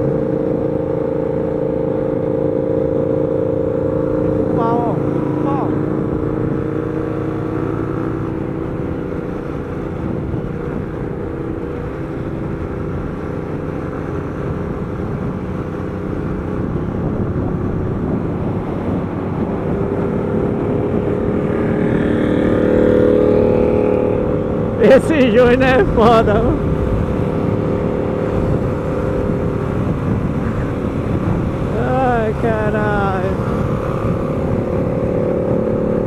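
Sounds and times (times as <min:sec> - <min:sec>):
motorcycle engine cruising: 0:00.0 - 0:36.0
passing motorcycle engine: 0:00.0 - 0:36.0
wind rushing: 0:14.5 - 0:36.0.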